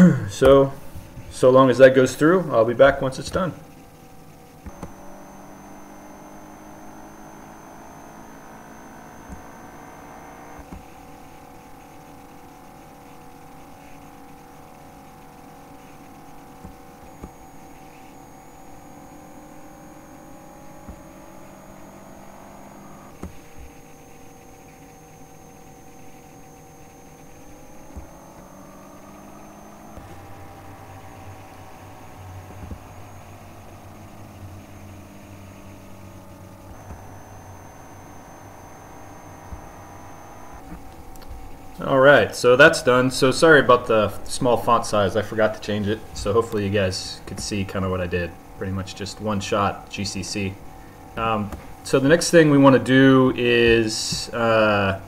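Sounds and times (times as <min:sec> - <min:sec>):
electrical hum: 0:00.0 - 0:55.0.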